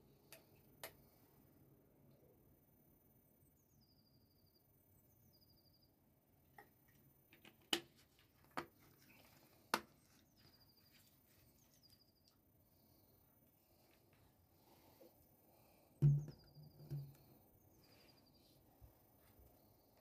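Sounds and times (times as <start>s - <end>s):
small bird song with trill: 3.4s - 6.0s, 10.1s - 12.4s.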